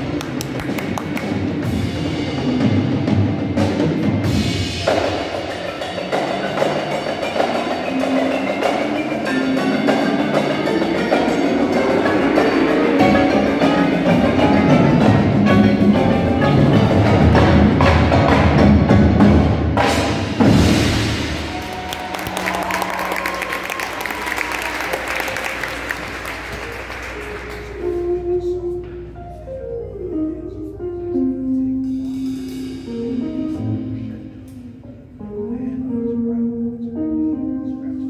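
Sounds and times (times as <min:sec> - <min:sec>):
drums: 0:00.0 - 0:30.2, 0:30.8 - 0:36.0
marimbas ringing: 0:05.5 - 0:14.4.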